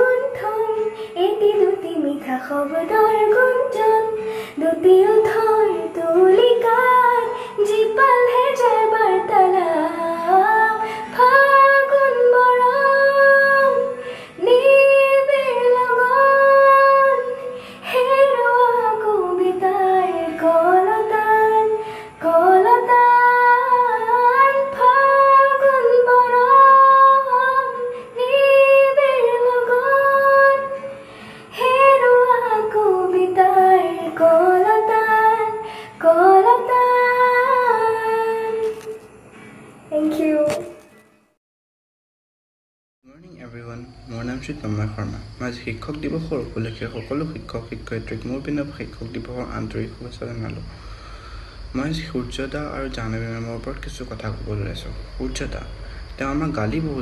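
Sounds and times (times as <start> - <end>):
girl singing: 0.0 - 39.0, 39.9 - 40.9.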